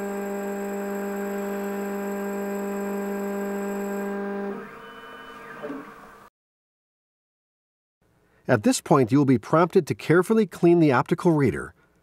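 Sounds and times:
cutter motor whine: 0.0s - 5.7s.

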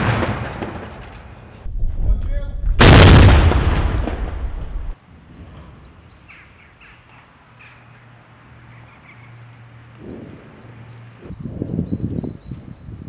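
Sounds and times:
artillery gun shot echo: 2.6s - 5.0s.

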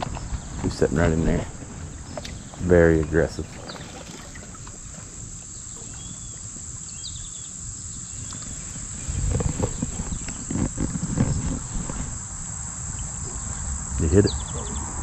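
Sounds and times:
insects buzzing: 0.0s - 15.0s
microphone handling rustles: 8.2s - 12.5s.

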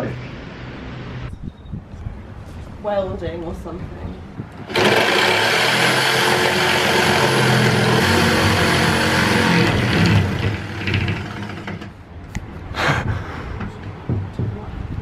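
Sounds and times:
electric jigsaw cutting wood: 4.7s - 11.9s.

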